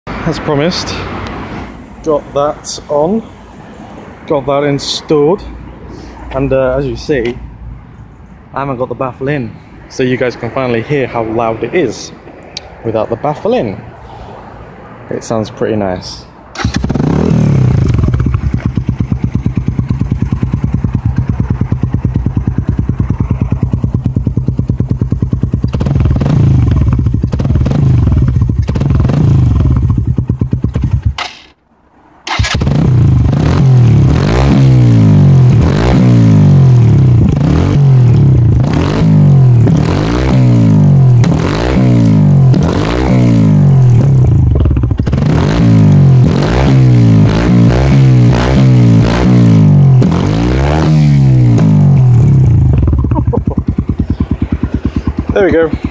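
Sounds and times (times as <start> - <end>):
motorcycle engine idling and revving: 15.2 - 55.9.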